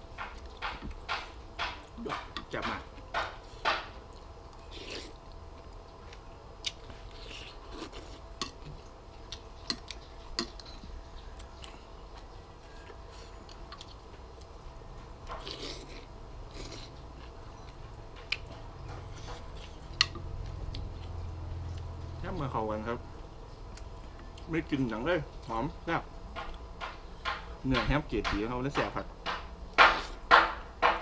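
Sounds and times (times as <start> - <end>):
person chewing: 3.4 - 14.6, 15.2 - 22.5.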